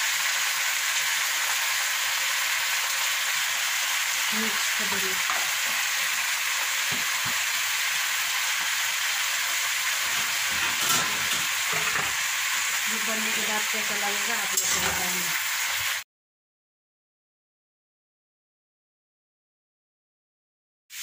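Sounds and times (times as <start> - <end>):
greens sizzling in hot oil: 0.0 - 16.0.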